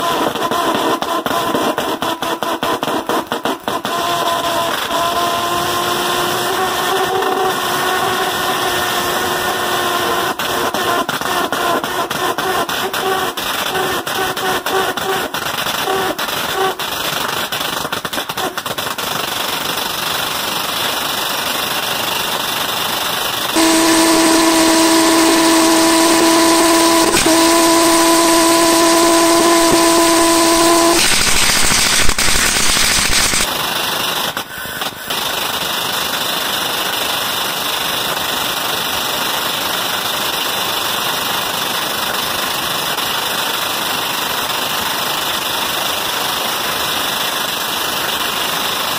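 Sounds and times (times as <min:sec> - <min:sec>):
buzzing drone: 0:04.2 - 0:11.0, 0:23.6 - 0:33.5
pulse jet engine roaring: 0:04.2 - 0:14.4, 0:23.6 - 0:33.5
sharp engine pops: 0:23.6 - 0:33.5.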